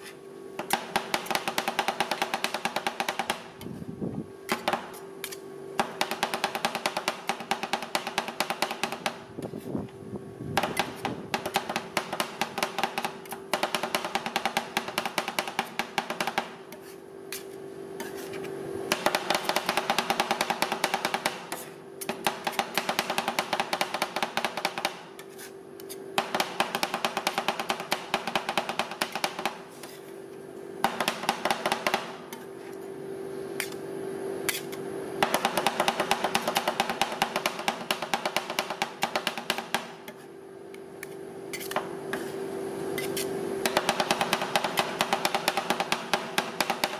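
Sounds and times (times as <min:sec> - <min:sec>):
metal spatulas chopping on steel plate: 0:34.5 - 0:40.3, 0:41.0 - 0:42.4.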